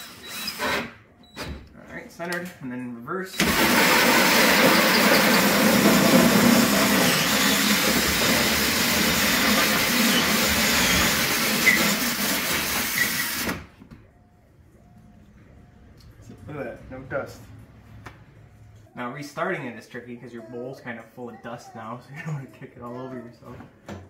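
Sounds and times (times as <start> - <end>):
drill hole saw grinding drywall: 3.4 - 13.6.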